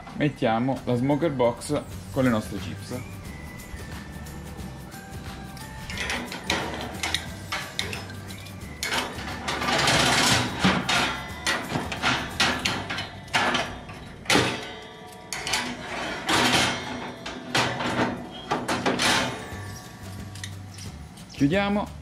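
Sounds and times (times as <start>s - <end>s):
metal grill grates clanking: 4.9s - 21.8s.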